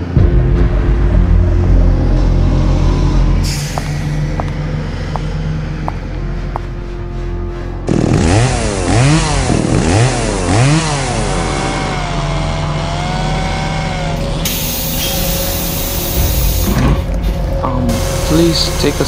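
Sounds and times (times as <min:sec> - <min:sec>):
low engine hum: 0:00.0 - 0:19.0
chainsaw revving: 0:07.9 - 0:16.6.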